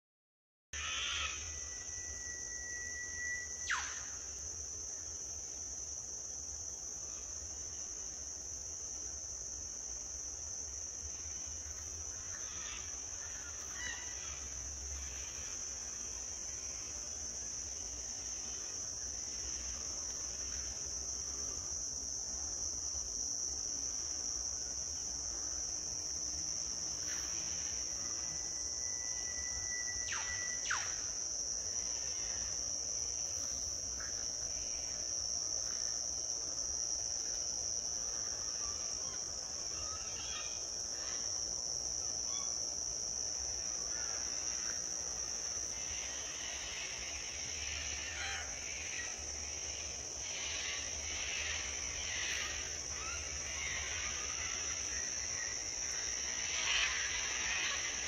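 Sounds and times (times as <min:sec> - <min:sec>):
bird whistle with downward sweep: 0:00.8 - 0:04.2, 0:28.9 - 0:31.0
insects trilling: 0:00.8 - 0:58.0.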